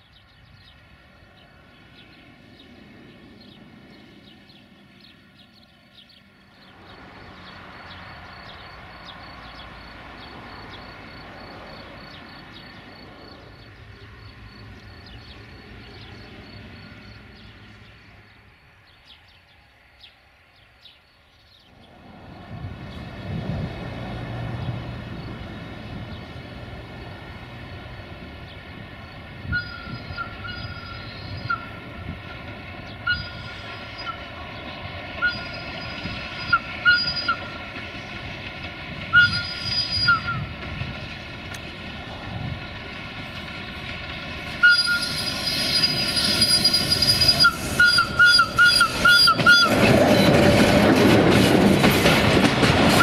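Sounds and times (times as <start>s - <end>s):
diesel locomotive engine whine: 0.0s - 53.0s
train wheels squealing: 29.4s - 31.8s, 33.0s - 34.5s, 35.2s - 38.2s, 39.1s - 40.6s, 44.5s - 50.6s.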